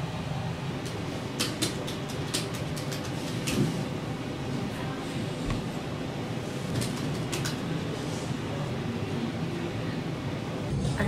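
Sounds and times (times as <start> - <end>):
steady low hum: 0.0 - 11.0
laptop keyboard typing: 0.8 - 3.6, 6.7 - 7.6.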